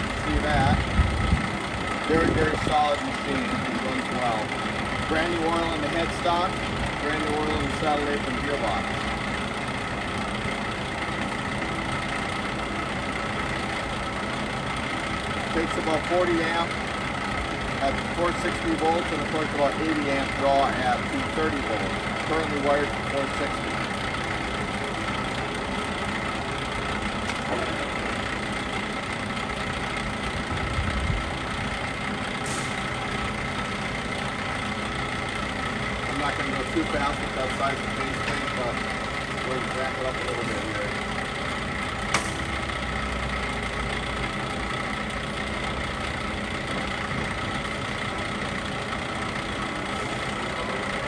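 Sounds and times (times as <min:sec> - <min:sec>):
lathe humming: 0:00.0 - 0:51.0.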